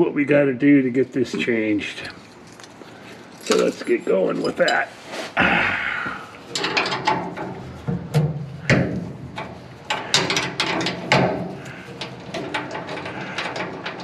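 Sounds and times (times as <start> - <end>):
metal tools clanking on bolt: 3.4 - 4.9, 6.5 - 14.0.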